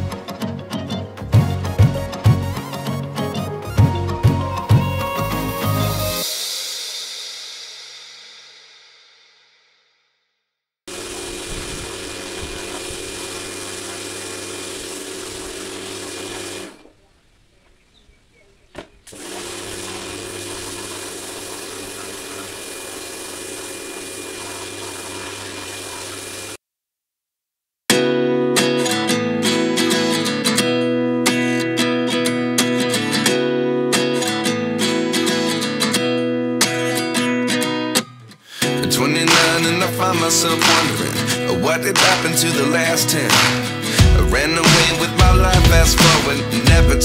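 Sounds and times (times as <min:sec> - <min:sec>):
strummed acoustic guitar music: 0:00.0 - 0:06.2, 0:27.9 - 0:47.0
pressure washer spraying: 0:10.9 - 0:16.8, 0:19.1 - 0:26.6.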